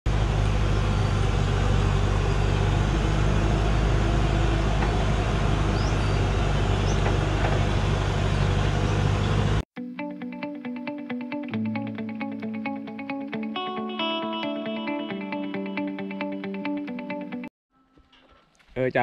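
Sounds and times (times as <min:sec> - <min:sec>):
road and tyre noise: 0:00.1 - 0:09.6
truck engine under load: 0:00.1 - 0:09.6.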